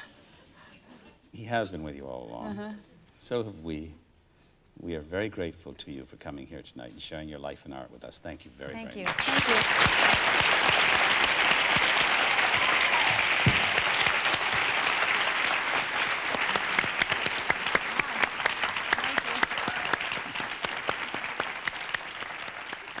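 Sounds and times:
large audience applauding: 0:09.0 - 0:23.0.

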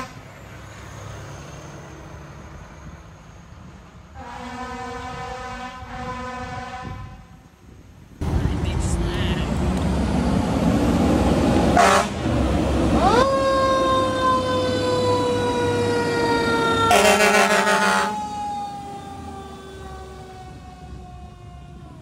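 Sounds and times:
air horn blasts: 0:04.2 - 0:07.4, 0:11.8 - 0:12.2, 0:16.9 - 0:18.2
fire engine siren: 0:11.7 - 0:22.0.

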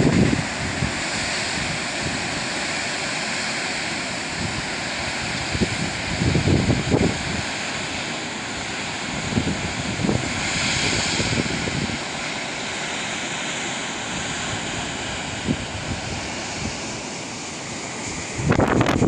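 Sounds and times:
wind buffeting microphone: 0:00.0 - 0:02.4, 0:04.3 - 0:07.6, 0:09.1 - 0:12.1, 0:14.2 - 0:17.1, 0:18.0 - 0:19.0
steady rushing hiss: 0:00.0 - 0:19.0.

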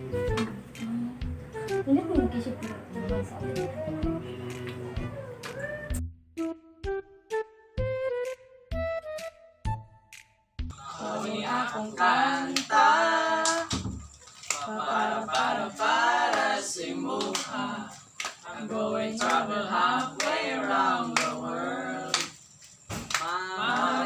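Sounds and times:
clap or snap on the beat: 0:00.3 - 0:00.6, 0:13.4 - 0:13.8, 0:14.4 - 0:14.7, 0:15.3 - 0:15.6, 0:16.2 - 0:18.5, 0:19.2 - 0:21.4, 0:22.1 - 0:22.4, 0:23.0 - 0:24.0
voices singing without instruments: 0:10.7 - 0:24.0.

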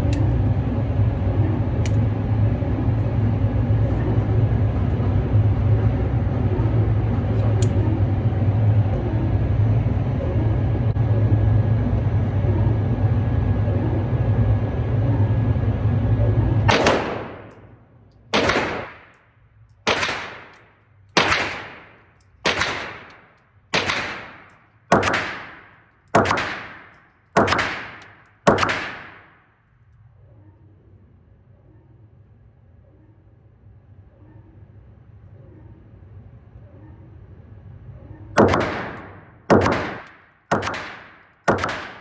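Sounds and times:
low vehicle rumble: 0:00.0 - 0:18.4
gunshots with ringing tail: 0:16.7 - 0:19.2, 0:19.8 - 0:29.5, 0:38.4 - 0:42.0.

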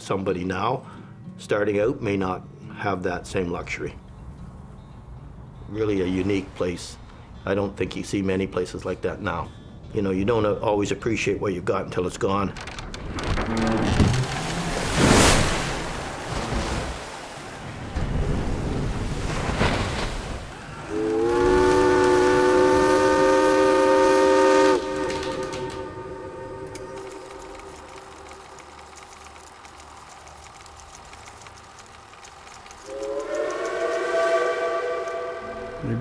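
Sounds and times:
water rushing splash: 0:13.2 - 0:29.6
steam whistle chord blasts: 0:20.9 - 0:27.8, 0:32.9 - 0:36.0.

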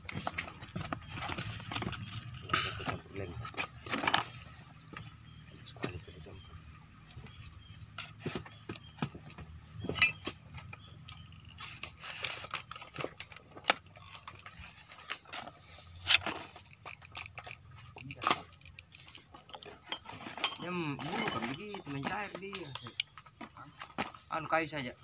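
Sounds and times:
small clicks rustles and scrapes: 0:00.0 - 0:24.7
metallic clink: 0:09.9 - 0:10.3.

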